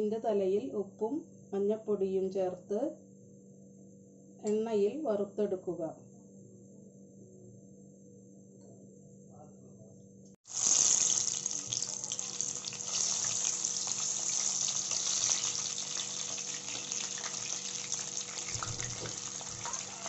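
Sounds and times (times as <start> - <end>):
fish sizzling in hot oil: 10.5 - 20.0
oil spitting crackles: 10.5 - 20.0.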